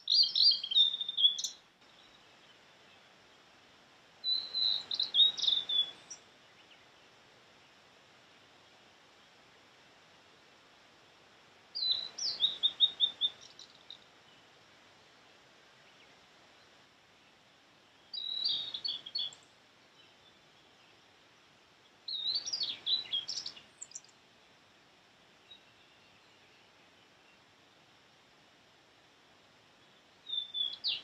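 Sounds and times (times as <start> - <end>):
flycatcher singing: 0.0 - 2.1, 4.2 - 6.7, 11.8 - 14.0, 18.0 - 20.1, 22.1 - 24.1, 30.3 - 31.0.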